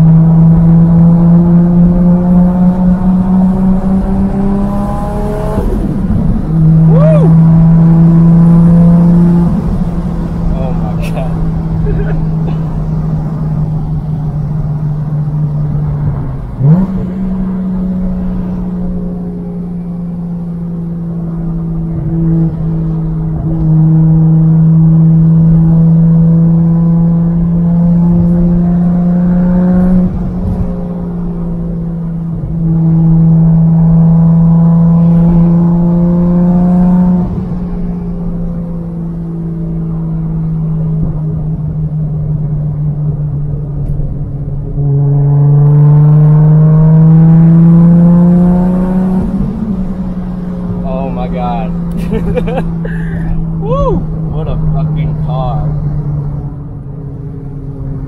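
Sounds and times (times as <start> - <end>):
car engine accelerating: 0.0 - 58.0.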